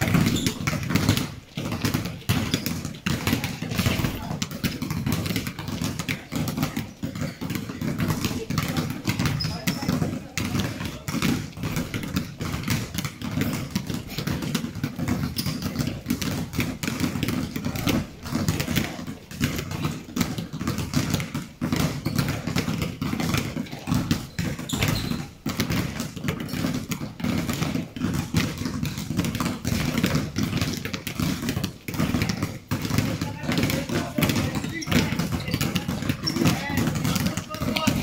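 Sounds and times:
basketballs bouncing on gym floor: 0:00.0 - 0:38.0.

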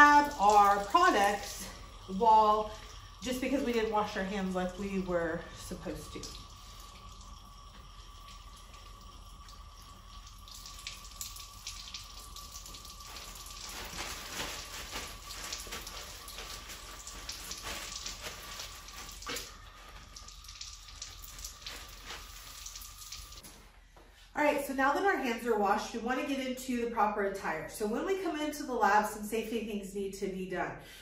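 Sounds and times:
faucet water running: 0:00.0 - 0:23.4
paper towels rustling: 0:13.0 - 0:20.2, 0:21.3 - 0:22.8.

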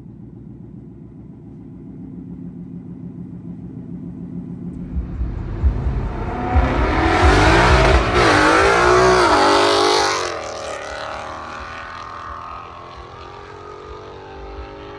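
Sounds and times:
car accelerating past: 0:04.8 - 0:14.9.

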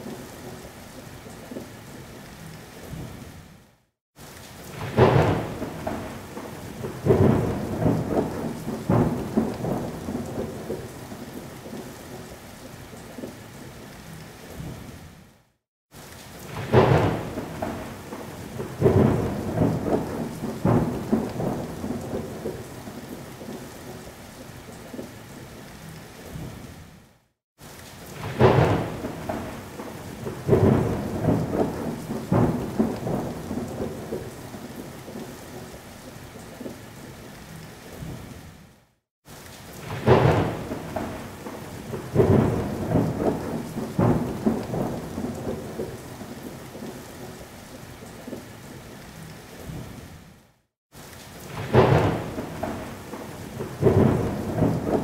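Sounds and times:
steady rain: 0:00.0 - 0:55.0
thunder claps and rumble: 0:04.7 - 0:12.3, 0:16.4 - 0:24.1, 0:28.1 - 0:35.7, 0:39.7 - 0:47.4, 0:51.4 - 0:55.0.

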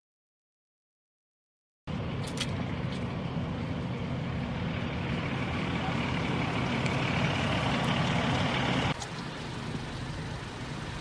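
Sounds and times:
car engines idling: 0:01.9 - 0:11.0
engine and road background: 0:01.9 - 0:11.0.

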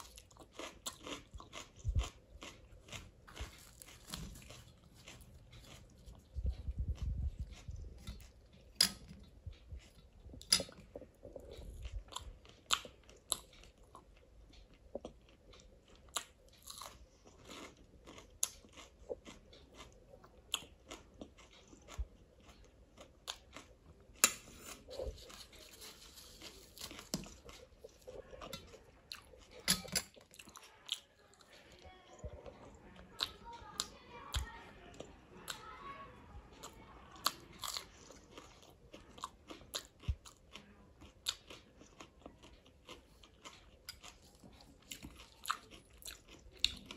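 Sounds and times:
person chewing with wet smacks: 0:00.0 - 0:35.8, 0:36.5 - 0:46.9
soft rustle: 0:24.5 - 0:28.5.

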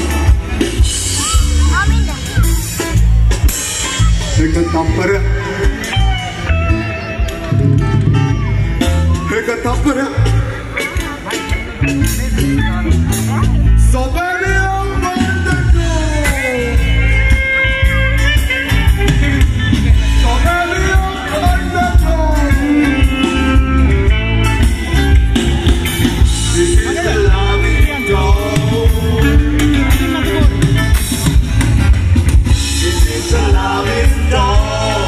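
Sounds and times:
live band music: 0:00.0 - 0:35.0
person singing: 0:26.4 - 0:30.7, 0:32.6 - 0:35.0.

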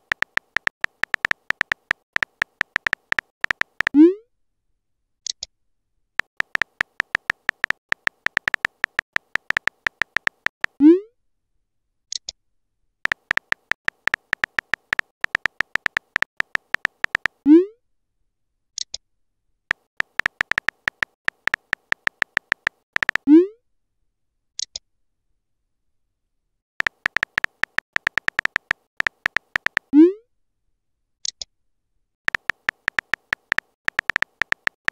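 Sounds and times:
synthetic key-tap clicks: 0:00.0 - 0:04.0, 0:06.2 - 0:10.8, 0:13.1 - 0:17.4, 0:19.7 - 0:23.3, 0:26.8 - 0:29.9, 0:32.3 - 0:34.9.

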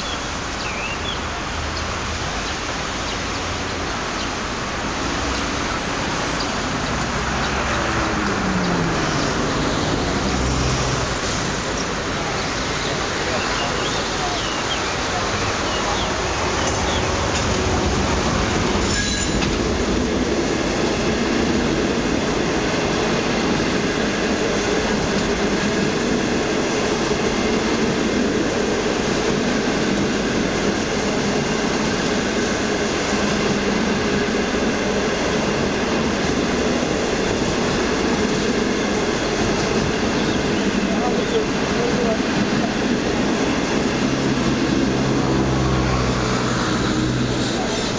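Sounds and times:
train wheels on rails: 0:00.0 - 0:47.9.

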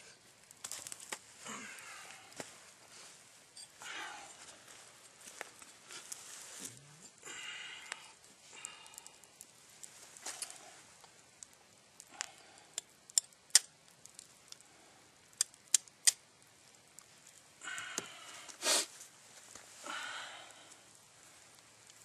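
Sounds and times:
sharp clicks and snaps: 0:08.6 - 0:14.6, 0:15.3 - 0:16.2.

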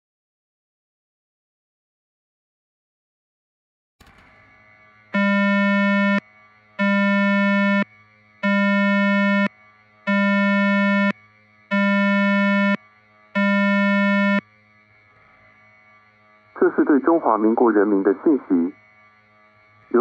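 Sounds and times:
low buzzy electronic beeps: 0:05.2 - 0:06.2, 0:06.8 - 0:09.5, 0:10.1 - 0:12.8, 0:13.4 - 0:14.4.

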